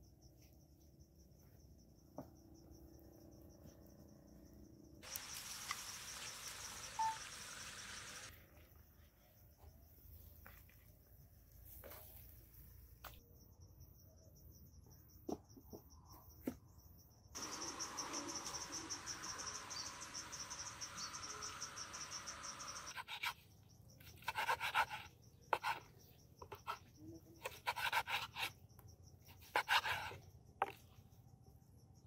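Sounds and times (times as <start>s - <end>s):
insects trilling: 0.0s - 8.3s, 13.4s - 32.0s
steady hiss: 5.0s - 8.3s, 17.4s - 23.0s.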